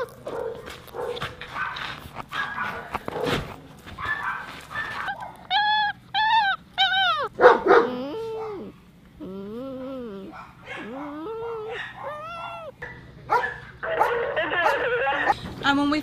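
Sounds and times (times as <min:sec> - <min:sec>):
dog whimpering: 0:00.0 - 0:00.2, 0:04.0 - 0:12.8, 0:13.8 - 0:15.4
dogs barking and yelping: 0:00.0 - 0:15.4.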